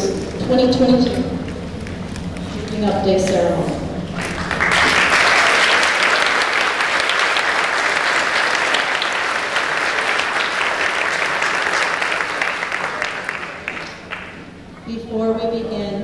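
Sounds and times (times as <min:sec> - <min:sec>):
audience applauding: 0:04.1 - 0:14.5.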